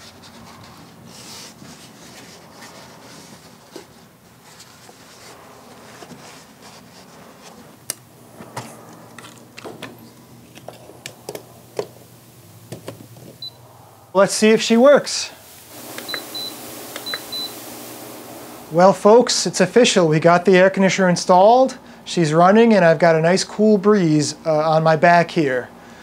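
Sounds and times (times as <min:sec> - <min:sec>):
foam weatherstrip rustling: 0:09.2 - 0:19.4.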